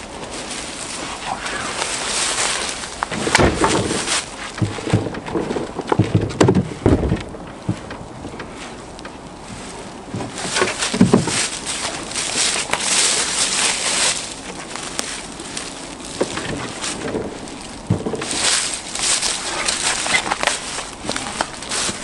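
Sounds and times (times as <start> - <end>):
footsteps crunching dry leaves: 0.0 - 5.7, 8.5 - 22.0
firewood thudding into cargo bed: 3.0 - 8.5, 10.1 - 12.0, 16.2 - 22.0.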